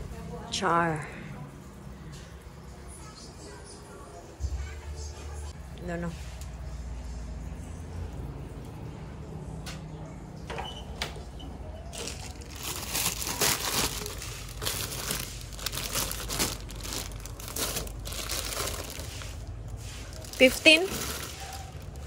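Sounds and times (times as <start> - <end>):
plastic bags crinkling: 11.9 - 22.0.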